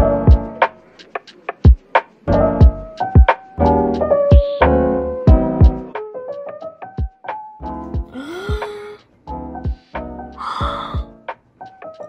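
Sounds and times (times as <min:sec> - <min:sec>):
sustained keyboard chords: 0:02.3 - 0:08.7.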